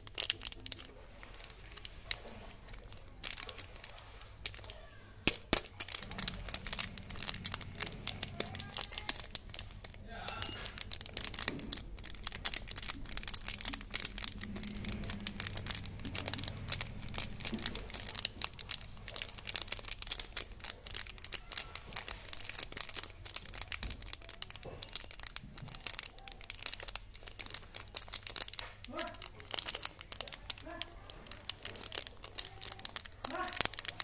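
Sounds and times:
plastic wrapper crinkling: 0:00.0 - 0:34.0.

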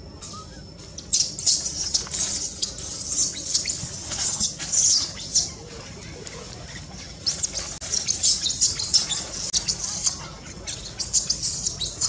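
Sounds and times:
dry leaves rustling and crackling: 0:01.4 - 0:12.0.

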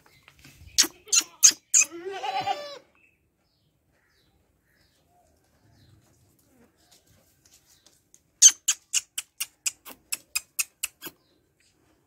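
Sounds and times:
goat bleat: 0:00.8 - 0:02.9
sharp clicks: 0:08.4 - 0:11.2.

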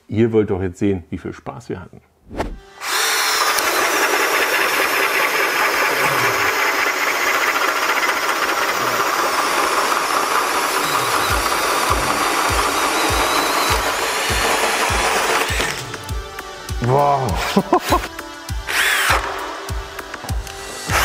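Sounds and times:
cordless drill drilling into wood: 0:02.7 - 0:16.0, 0:18.7 - 0:19.4, 0:20.8 - 0:21.0
music with thumping beat: 0:11.2 - 0:21.0.

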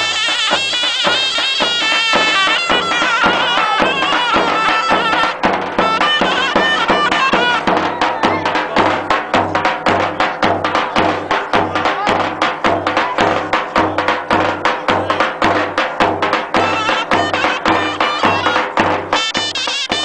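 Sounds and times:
shrill double-reed melody: 0:00.0 - 0:08.5, 0:16.5 - 0:20.0
bass drum beats: 0:00.0 - 0:20.0.

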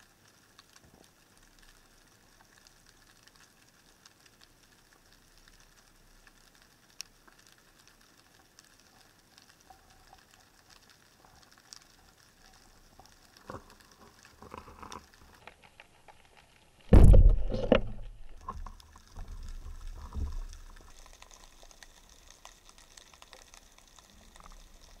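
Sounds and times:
faint underwater clicks: 0:00.0 - 0:25.0
speargun firing underwater: 0:16.9 - 0:18.0
weak underwater knocks: 0:16.9 - 0:18.7.

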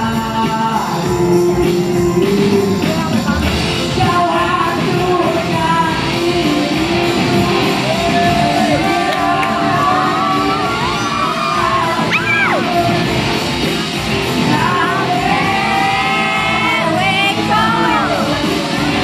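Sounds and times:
man singing through microphone: 0:00.0 - 0:13.1, 0:14.4 - 0:19.0
backing music: 0:00.0 - 0:19.0.

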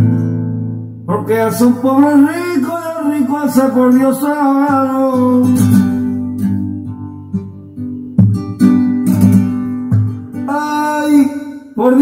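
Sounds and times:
acoustic guitar strumming: 0:00.0 - 0:12.0
person singing: 0:01.1 - 0:06.6, 0:10.3 - 0:12.0.

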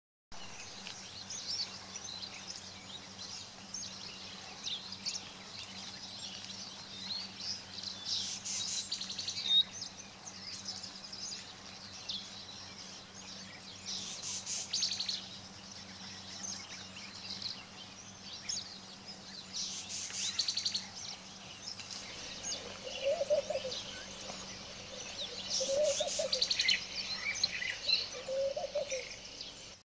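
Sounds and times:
birds chirping and calling: 0:00.5 - 0:29.8.

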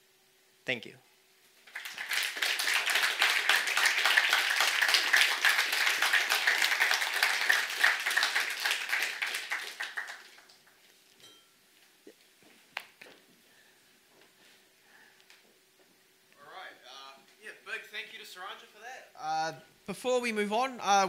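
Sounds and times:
audience applauding: 0:01.6 - 0:10.8.

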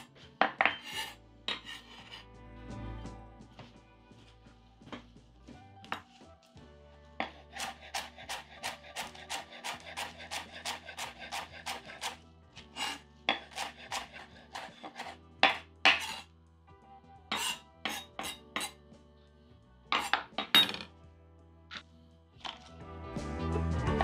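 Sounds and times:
knife chopping on cutting board: 0:07.2 - 0:12.2, 0:12.8 - 0:16.2.

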